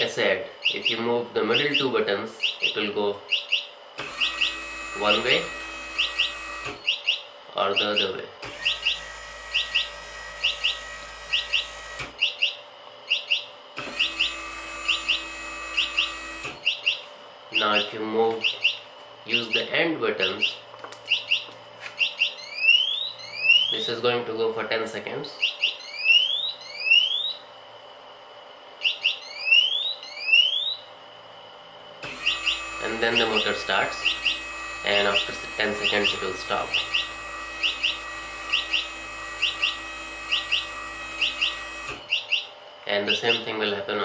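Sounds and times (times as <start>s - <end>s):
electronic buzzer chirping: 0.0s - 24.0s, 25.4s - 27.5s, 28.8s - 30.9s, 32.0s - 42.5s
electric motor humming: 3.8s - 7.1s, 7.8s - 13.0s, 13.6s - 19.6s, 31.0s - 43.4s
motor stopping click: 4.0s - 7.2s, 8.4s - 12.5s, 13.1s - 17.0s, 32.0s - 42.4s.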